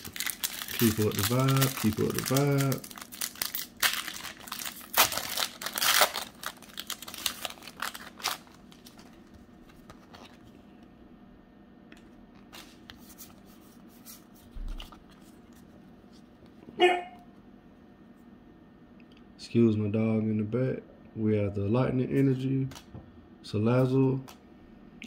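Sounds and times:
foil pack crinkling and tearing: 0.0 - 10.4.

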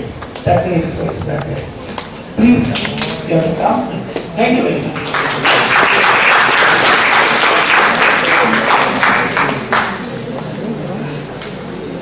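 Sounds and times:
audience applauding: 4.9 - 10.2.

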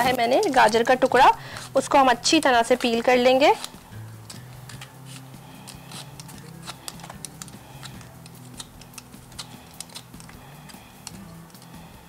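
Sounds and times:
carrot being peeled: 0.0 - 11.9.

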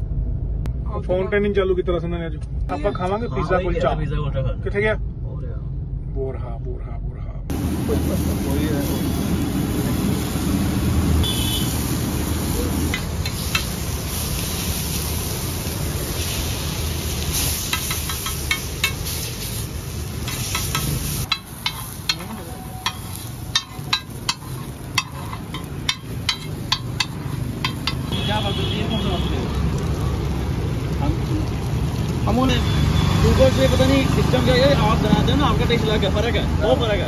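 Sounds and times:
street din: 7.5 - 37.0
metal spatula clacking on griddle: 12.9 - 13.8, 17.7 - 19.1, 20.2 - 28.1.

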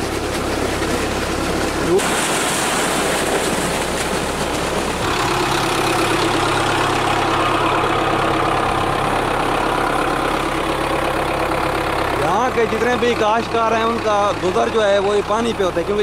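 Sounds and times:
tractor diesel engine running: 0.0 - 16.0
water rushing from pipe: 0.0 - 16.0.

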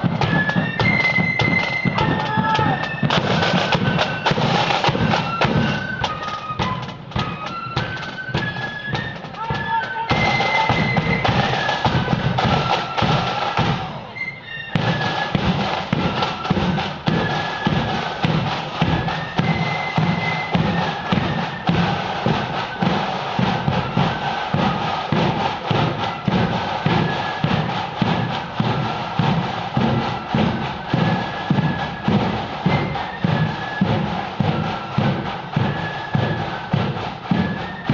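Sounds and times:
driving drum beat: 0.0 - 14.2, 14.8 - 37.9
marching band playing: 0.0 - 37.9.

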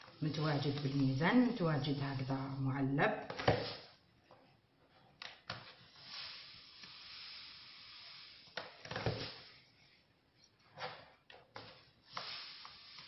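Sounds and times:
hiss of falling grains: 0.0 - 2.6, 5.8 - 9.7, 12.0 - 13.0.

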